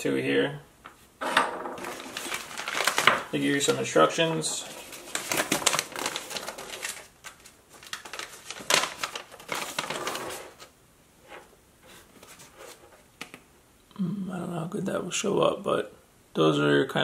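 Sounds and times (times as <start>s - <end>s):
paper crackling and rustling: 1.8s - 10.7s, 11.9s - 13.4s.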